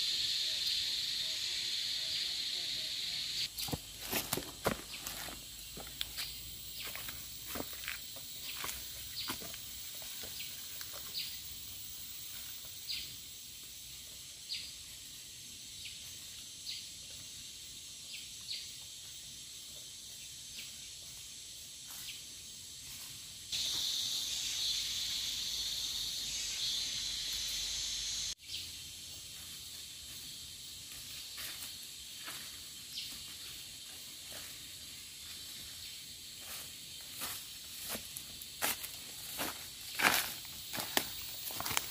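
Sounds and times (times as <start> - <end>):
high-pitched insect drone: 0.0 - 41.9
insects hissing: 0.0 - 41.9
footsteps on forest floor: 3.5 - 11.4, 30.0 - 41.9.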